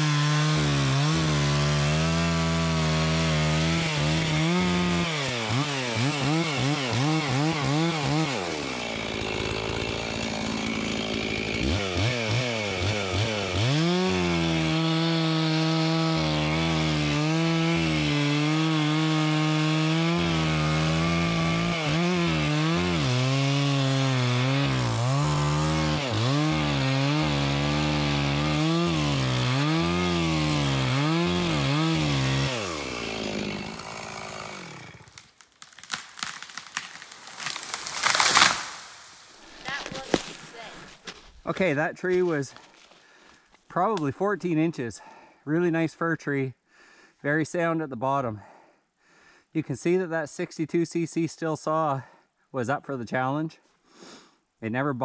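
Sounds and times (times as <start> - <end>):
chainsaw cutting wood: 0.0 - 41.3.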